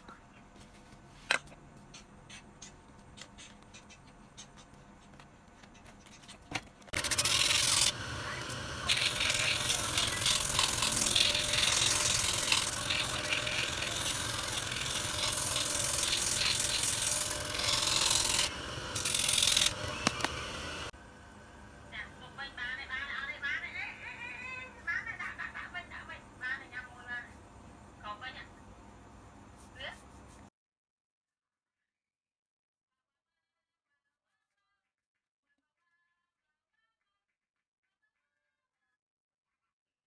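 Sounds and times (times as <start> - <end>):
shoe sole grinding on sanding drum: 7.0 - 20.4.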